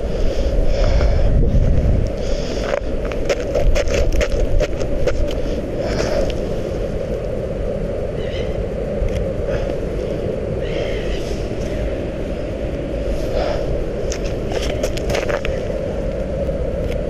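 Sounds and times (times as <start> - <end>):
wind on microphone: 0.0 - 17.0
shoes crunching on snow: 2.6 - 6.3, 14.1 - 15.8.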